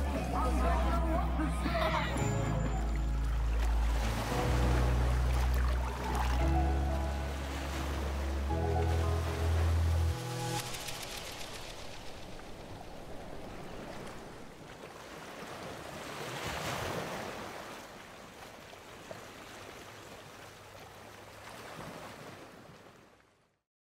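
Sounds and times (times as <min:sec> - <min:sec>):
surf breaking on a beach: 0:09.0 - 0:18.0.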